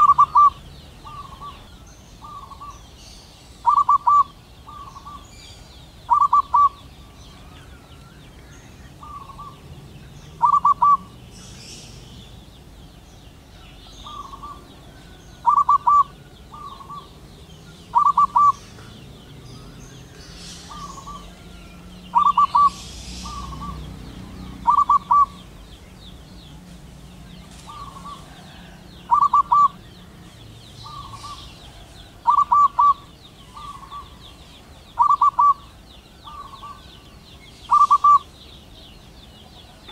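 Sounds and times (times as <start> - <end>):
dove cooing: 0.0 - 2.8, 3.6 - 5.3, 6.0 - 7.9, 8.7 - 12.3, 13.6 - 25.7, 27.5 - 34.2, 34.9 - 36.9, 37.7 - 38.3.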